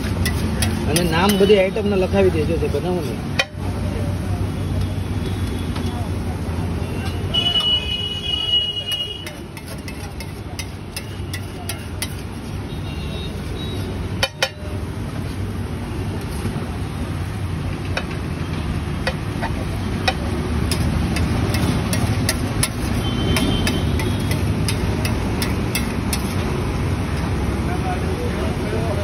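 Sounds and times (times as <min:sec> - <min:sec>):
spatula scraping on griddle: 0:00.0 - 0:01.6, 0:08.8 - 0:12.8, 0:20.6 - 0:26.5.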